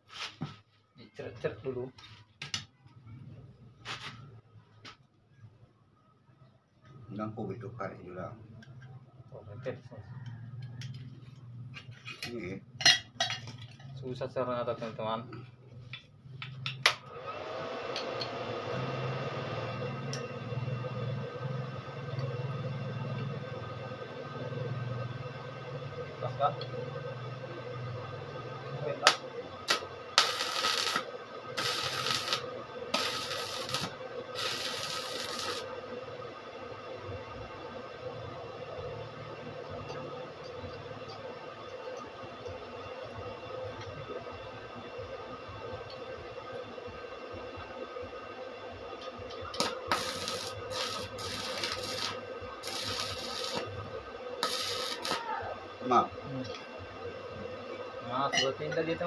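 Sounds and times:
arc welder crackling and sizzling: 16.6 - 37.6, 48.7 - 59.0
welding arc crackle: 29.0 - 35.7, 49.0 - 56.0.

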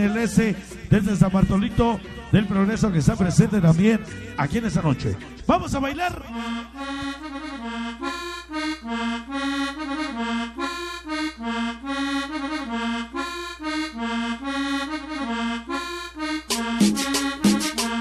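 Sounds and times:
accordion melody: 0.0 - 18.0
percussion: 16.5 - 18.0.

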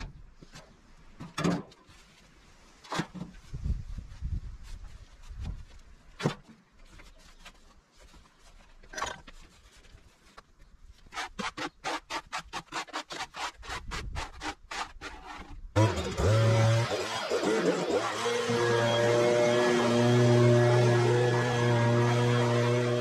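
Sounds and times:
rake scratching over soil: 1.8 - 15.6
scrapes and knocks: 4.6 - 11.8.

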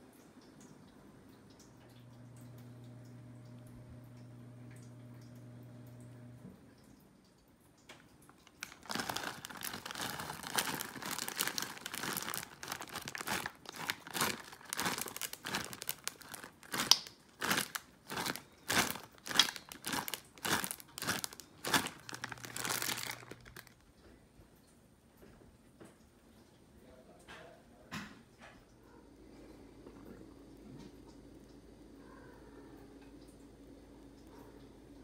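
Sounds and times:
plastic bag crinkling: 8.3 - 23.9.

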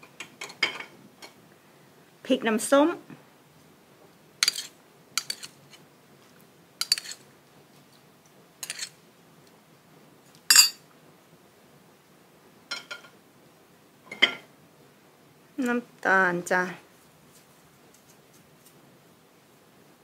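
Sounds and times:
spoon clinking against dishes: 6.8 - 7.2, 10.5 - 10.8.

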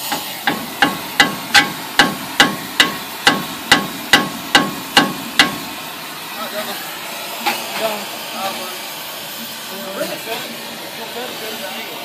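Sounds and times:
steady hiss: 0.0 - 12.0
hammer ringing on metal: 0.4 - 5.6.

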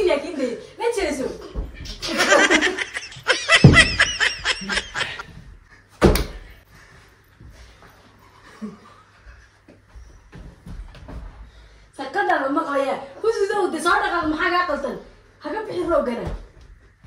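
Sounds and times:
woman laughing: 2.0 - 5.3
loud thump: 3.5 - 4.1.

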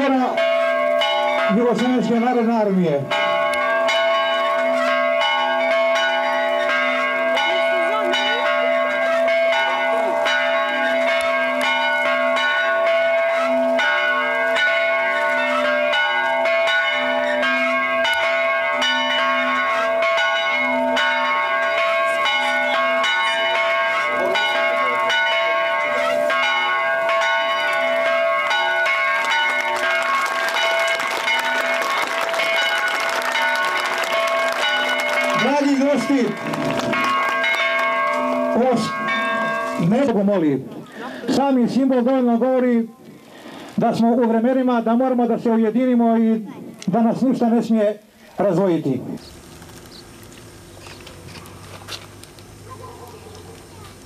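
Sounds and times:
church bells ringing: 0.0 - 49.0
applause: 29.2 - 38.0.

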